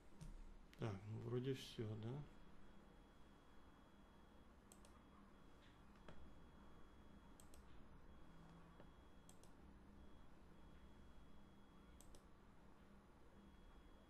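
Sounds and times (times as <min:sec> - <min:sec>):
faint room hum: 0:00.0 - 0:14.0
computer mouse clicks: 0:04.7 - 0:05.0, 0:07.4 - 0:07.8, 0:08.8 - 0:09.6, 0:12.0 - 0:12.3.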